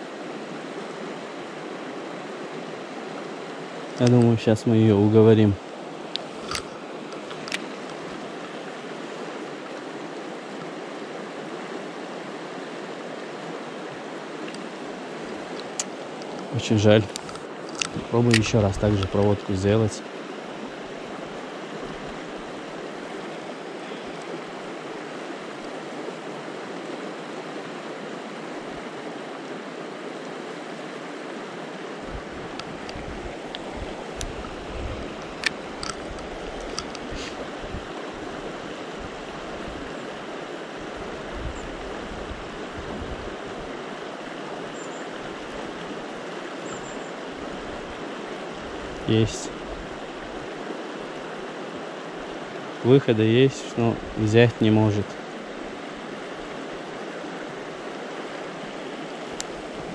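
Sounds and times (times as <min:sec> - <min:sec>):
fast river rushing: 0:00.0 - 0:59.9
sharp clicks: 0:17.1 - 0:19.2, 0:35.2 - 0:37.1.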